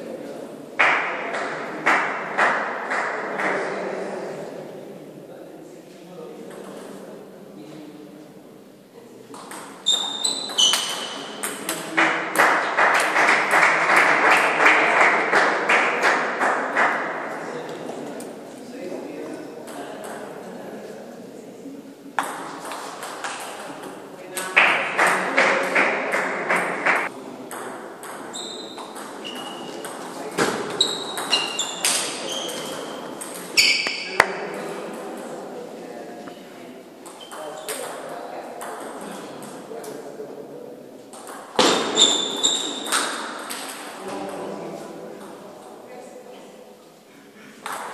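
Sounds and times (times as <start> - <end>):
rhythmic clapping: 11.7 - 17.1, 24.6 - 27.1
table tennis ball pinging: 27.0 - 32.0.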